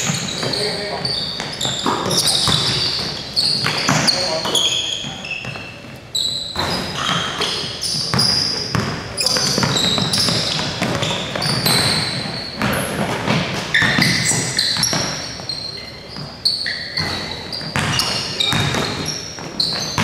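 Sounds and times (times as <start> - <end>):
sneakers squeaking: 0.0 - 20.0
basketball dribbling on wooden floor: 8.1 - 15.2, 17.0 - 20.0.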